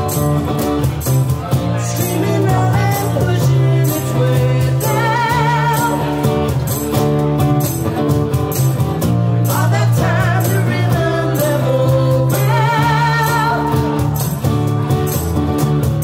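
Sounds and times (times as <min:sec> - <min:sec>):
acoustic guitar strumming: 0:00.0 - 0:16.0
person singing with vibrato: 0:01.7 - 0:06.5, 0:09.4 - 0:14.4.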